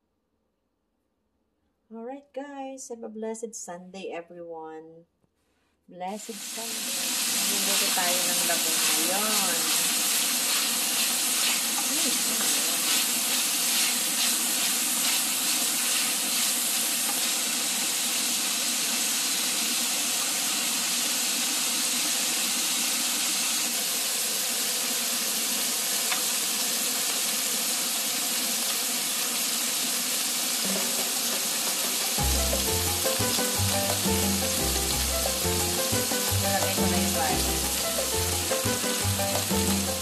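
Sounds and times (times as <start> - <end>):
meat sizzling in hot oil: 6.2 - 40.0
wooden spatula stirring: 7.8 - 17.3
music: 30.6 - 31.2, 31.8 - 40.0.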